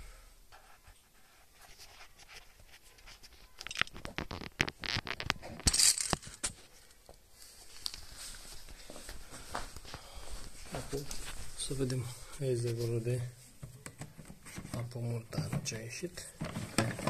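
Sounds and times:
handling clicks and scratches: 2.8s - 6.6s.

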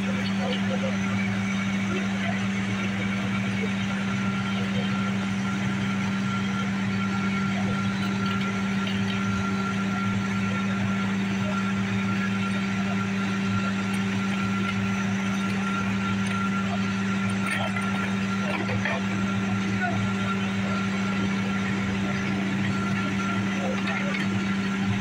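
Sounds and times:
fire engine idling hum: 0.0s - 25.0s.

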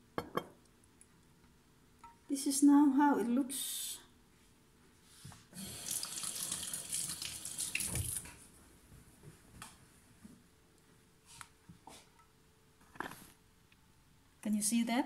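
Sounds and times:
tap running into a sink: 5.8s - 8.3s.

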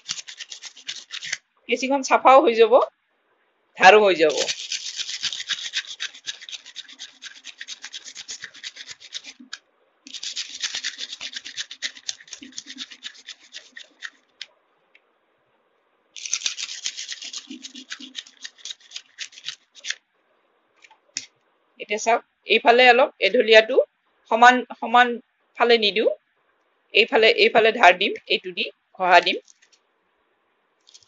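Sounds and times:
abrasive paper rasping on scissors: 0.0s - 1.4s, 4.3s - 14.3s, 16.2s - 20.0s.

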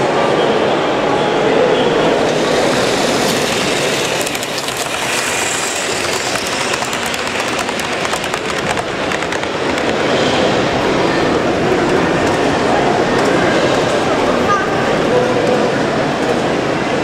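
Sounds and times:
steady background noise: 0.0s - 17.0s
model train wheels clicking: 2.2s - 10.7s.

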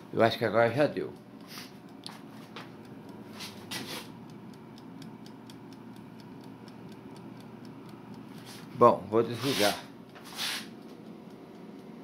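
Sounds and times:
air fryer fan hum: 0.0s - 12.0s
mechanical timer ticking: 0.5s - 12.0s.

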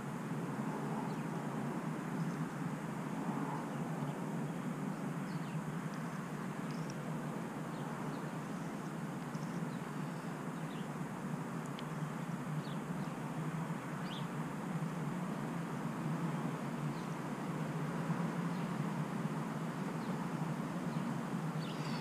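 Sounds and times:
steady low hum: 0.0s - 22.0s
faint bird chirps: 7.7s - 11.0s, 19.9s - 22.0s.

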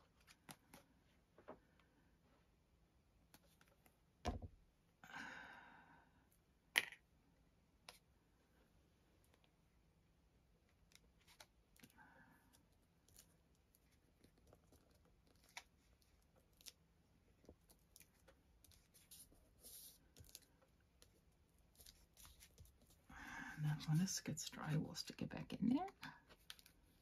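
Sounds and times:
paper rustling: 21.6s - 23.0s.

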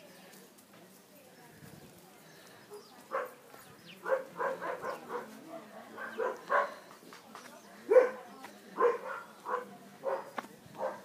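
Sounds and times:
dog barking: 3.1s - 3.4s, 4.0s - 6.8s, 7.9s - 11.0s.

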